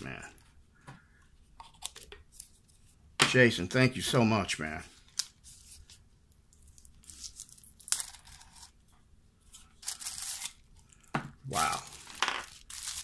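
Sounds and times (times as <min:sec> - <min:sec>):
tissue paper rustling: 0:11.6 - 0:13.0.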